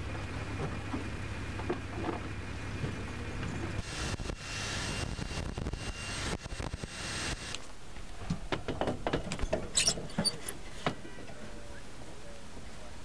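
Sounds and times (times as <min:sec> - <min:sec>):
steady low hum: 0:00.0 - 0:08.5
cordless drill whining on metal: 0:03.8 - 0:07.6.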